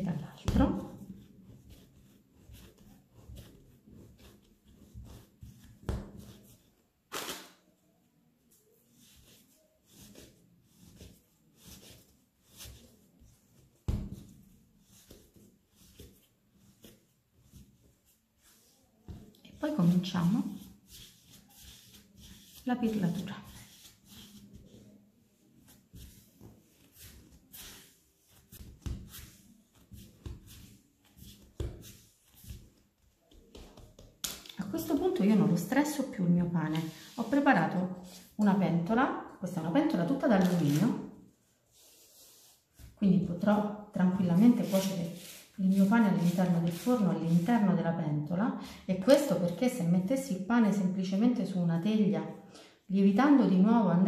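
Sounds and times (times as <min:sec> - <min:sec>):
dough kneading thumps and rubbing: 0:00.0 - 0:07.3, 0:09.0 - 0:35.6, 0:42.4 - 0:47.6.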